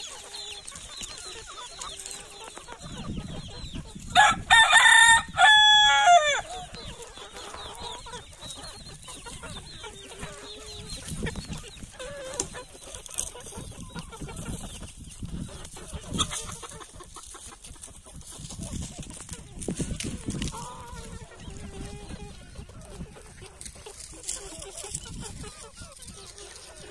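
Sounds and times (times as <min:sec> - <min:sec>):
hens clucking: 0:00.0 - 0:26.9
rooster crowing: 0:04.2 - 0:06.5.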